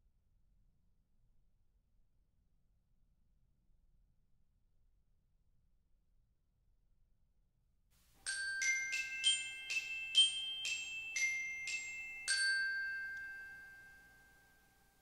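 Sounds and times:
bell-like music jingle: 8.3s - 15.0s.

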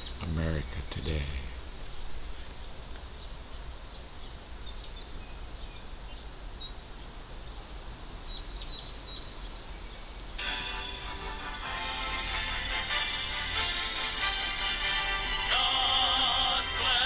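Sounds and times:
faint bird chirps: 0.0s - 7.6s, 8.2s - 10.4s.

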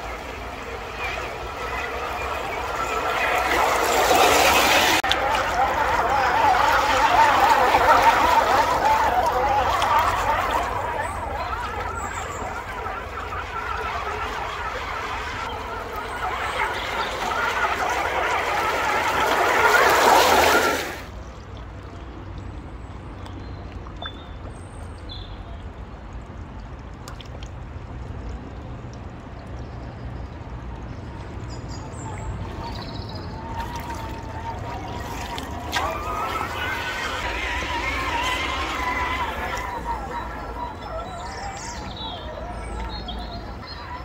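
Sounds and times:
creek water rushing: 0.0s - 21.2s, 31.9s - 44.0s.

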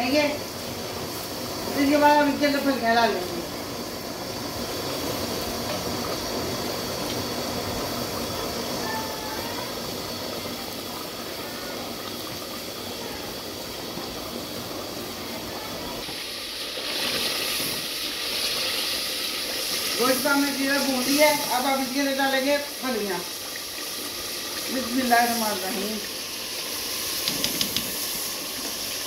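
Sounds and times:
gravy bubbling and sizzling: 0.0s - 29.0s.

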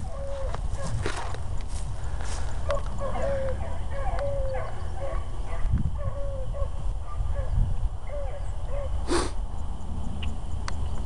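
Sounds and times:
hounds barking: 0.0s - 1.1s, 2.6s - 9.0s.

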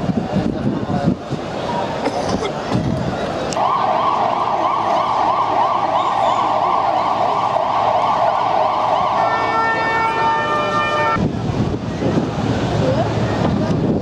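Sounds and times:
emergency vehicle siren: 3.5s - 11.2s.

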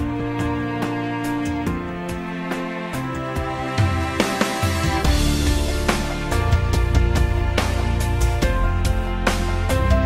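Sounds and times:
background music: 0.0s - 10.0s.

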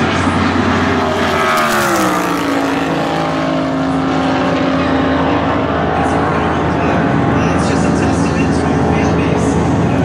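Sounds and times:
race car engine passing: 0.0s - 10.0s.

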